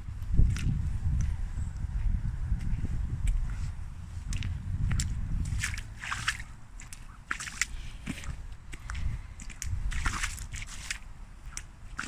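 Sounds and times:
boots splashing through mud: 3.3s - 12.0s.

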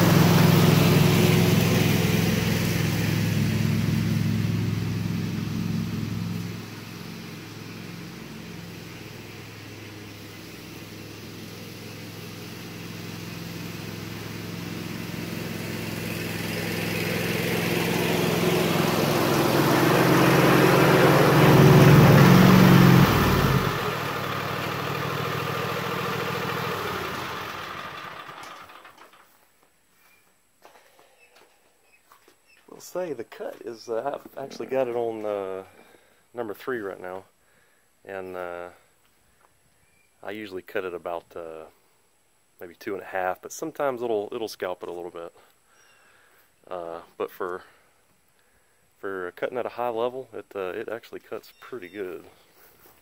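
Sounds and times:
riding mower engine running: 0.0s - 29.4s.

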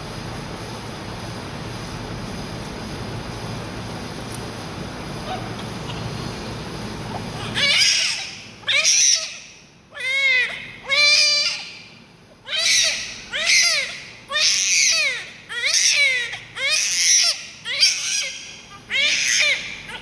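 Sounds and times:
newborn baby crying: 7.3s - 11.8s, 12.5s - 20.0s.

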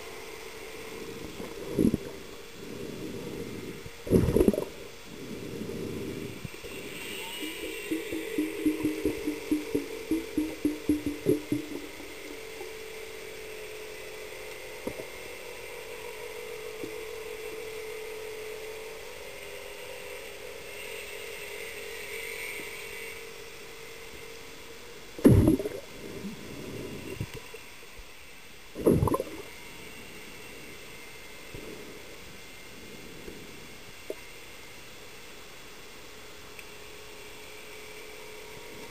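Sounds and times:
underwater motor hum: 1.0s - 13.0s, 25.2s - 27.4s, 28.8s - 29.6s
bursts of bubbling water: 7.4s - 12.3s, 25.2s - 25.9s, 28.8s - 29.5s.

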